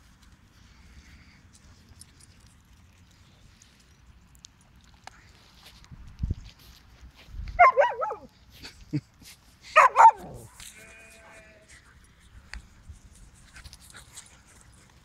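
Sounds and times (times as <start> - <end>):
dog yowling: 9.8 - 10.5.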